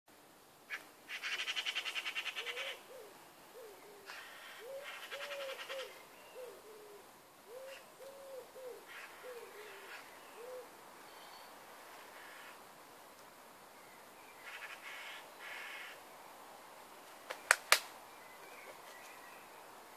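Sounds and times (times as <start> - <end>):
bird cooing: 1.1 - 11.4.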